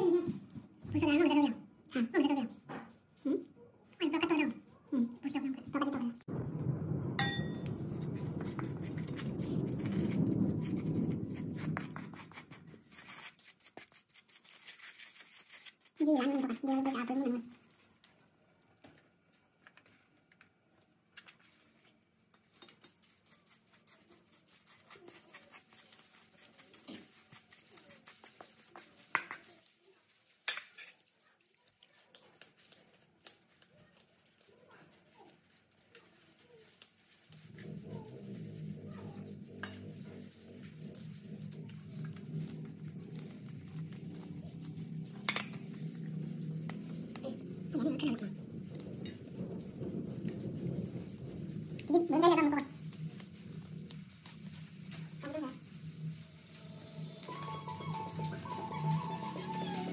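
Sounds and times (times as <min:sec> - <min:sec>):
metallic clink: 0:07.2 - 0:07.6
food scraping in metal bowl: 0:36.7 - 0:59.9.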